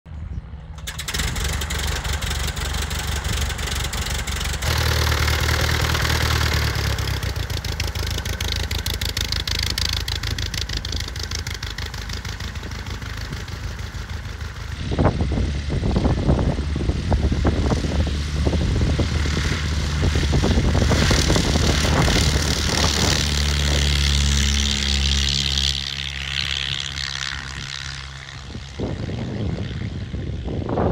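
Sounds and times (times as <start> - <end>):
propeller plane engine running: 0.1 - 30.9
wind rumble on microphone: 6.4 - 30.9.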